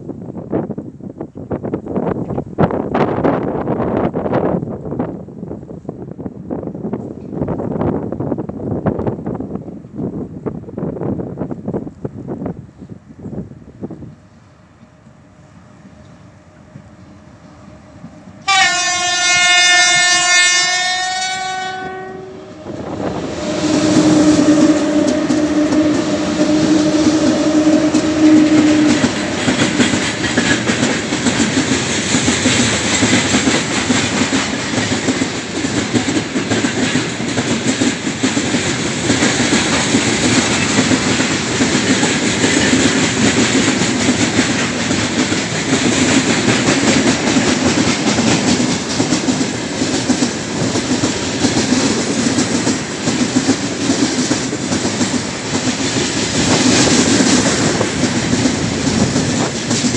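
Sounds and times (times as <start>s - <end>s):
locomotive droning: 14.1s - 33.3s
locomotive horn blast: 15.9s - 29.8s
train wheels clicking over rail joints: 22.6s - 59.9s.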